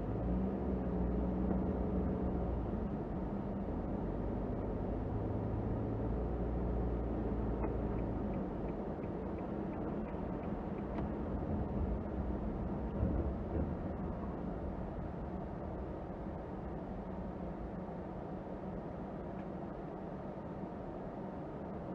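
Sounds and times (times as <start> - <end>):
car engine hum: 0.0 - 21.8
tyre and road noise: 6.6 - 17.0.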